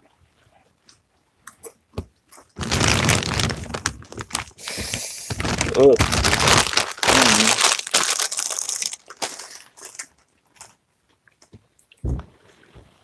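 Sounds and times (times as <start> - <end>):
plastic chip bag crinkling: 2.6 - 10.2.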